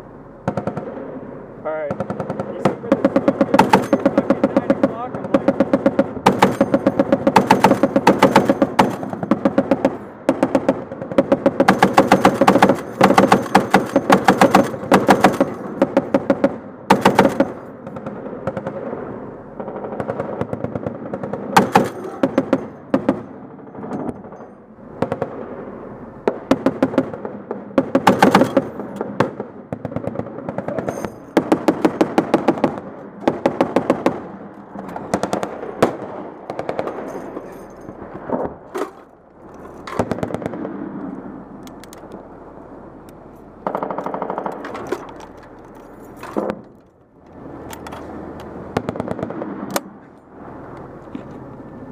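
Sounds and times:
machine gun firing bursts: 0.5s - 1.0s, 1.9s - 18.9s, 19.6s - 24.4s, 26.3s - 37.3s, 43.6s - 44.8s.

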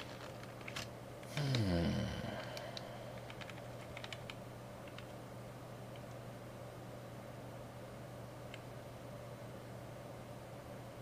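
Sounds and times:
man humming hmm: 1.3s - 3.1s.

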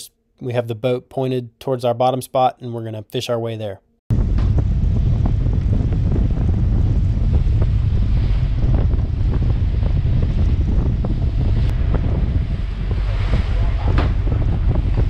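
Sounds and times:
boat engine rumble: 4.1s - 15.0s
churning wake water: 4.1s - 15.0s
wind buffeting microphone: 4.1s - 15.0s.

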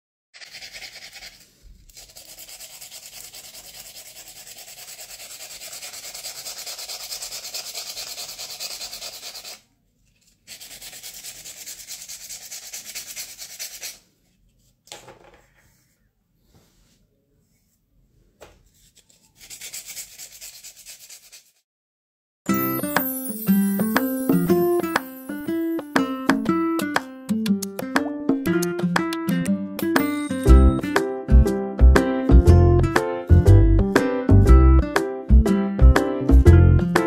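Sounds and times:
sandpaper scrubbing ceramic mug: 0.4s - 9.6s, 10.4s - 14.0s, 19.0s - 21.6s.

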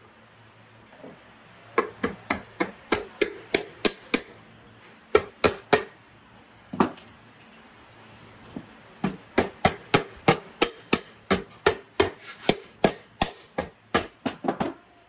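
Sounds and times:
sharp hand tool strokes: 10.6s - 13.4s.

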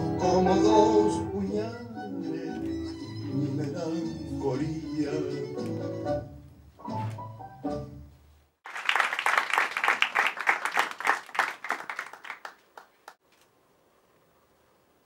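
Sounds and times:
audience clapping: 8.6s - 13.2s.

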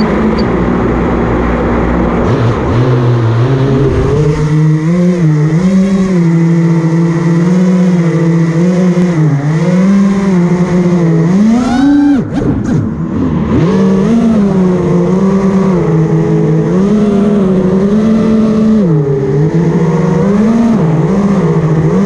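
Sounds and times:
drone motors whining: 0.0s - 0.7s.

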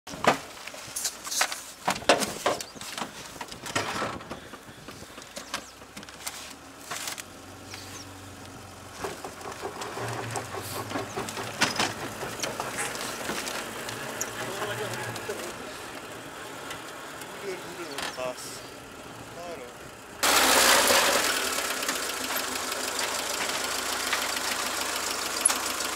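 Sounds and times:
truck engine humming: 0.8s - 25.9s
truck bed rattling and knocking: 1.8s - 6.1s, 8.9s - 15.4s.

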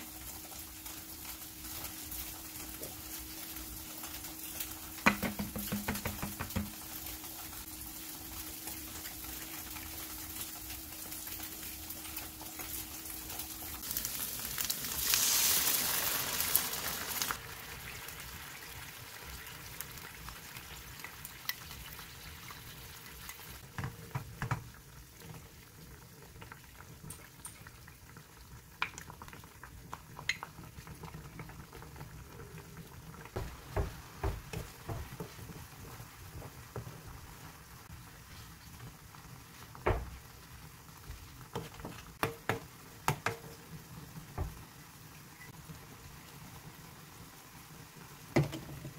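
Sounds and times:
tofu sizzling in a pan: 0.0s - 48.9s
spoon knocking against pan: 5.0s - 6.8s.

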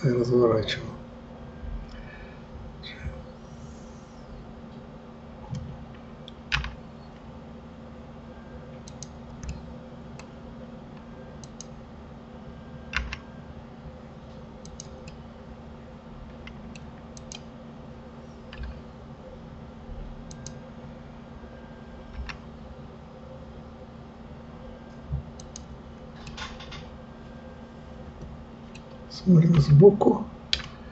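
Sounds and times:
keyboard and mouse clicks: 5.5s - 6.8s, 8.8s - 9.6s, 11.4s - 11.7s, 12.9s - 13.3s, 14.6s - 15.2s, 16.4s - 17.5s, 18.5s - 18.8s, 20.3s - 20.6s, 22.1s - 22.4s, 25.4s - 26.8s, 30.5s - 30.8s.

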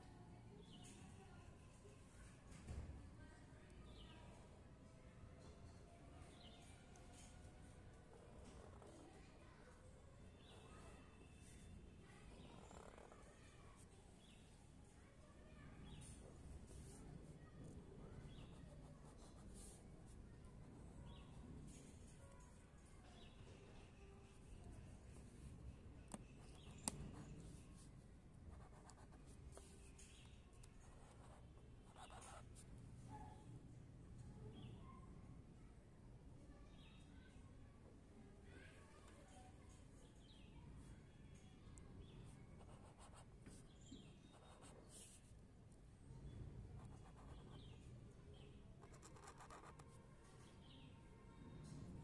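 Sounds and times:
pen scratching on paper: 8.4s - 9.1s, 12.4s - 13.2s, 18.3s - 19.8s, 26.1s - 27.9s, 28.5s - 30.3s, 30.9s - 32.6s, 42.6s - 45.3s, 46.8s - 47.8s, 48.8s - 49.9s.

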